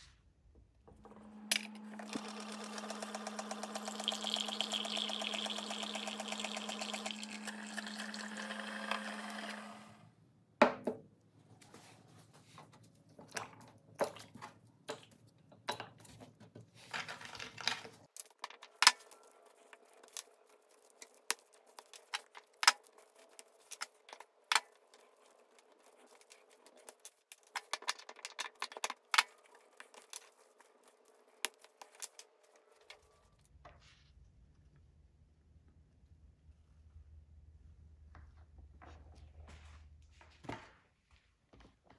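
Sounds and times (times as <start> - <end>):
rubbing of toy parts: 15.9 - 34.1
plastic pieces clicking on bench: 26.9 - 30.3.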